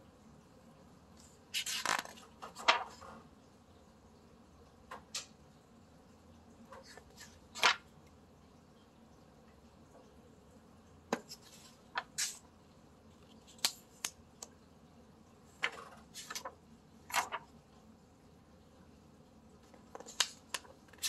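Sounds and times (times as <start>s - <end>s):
book pages turning: 1.5s - 3.2s, 11.1s - 12.4s, 15.6s - 17.5s, 19.6s - 21.0s.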